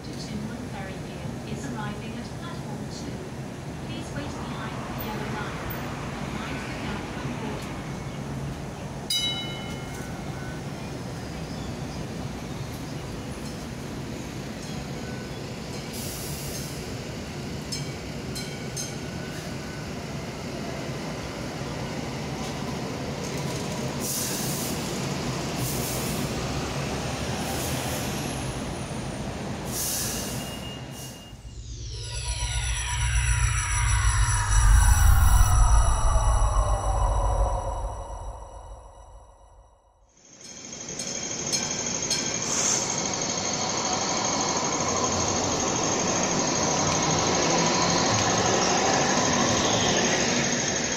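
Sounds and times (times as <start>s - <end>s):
train equipment low rumble: 0.0s - 40.2s
short hisses of air: 29.7s - 31.3s.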